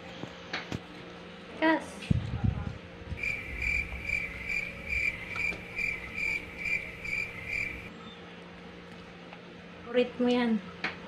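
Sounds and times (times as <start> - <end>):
cricket chirping: 3.2 - 7.9.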